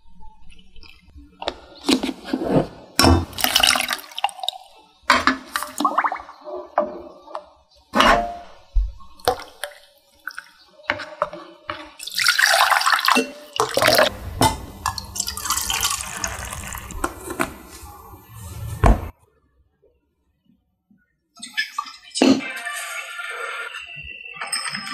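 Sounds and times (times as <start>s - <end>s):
liquid pouring: 3.3s - 4.8s, 12.0s - 17.5s.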